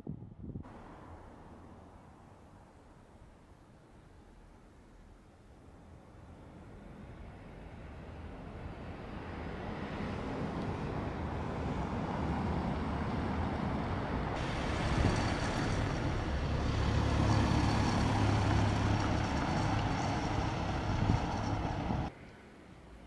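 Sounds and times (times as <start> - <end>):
vehicle rumbling on cobblestones: 6.7 - 22.1.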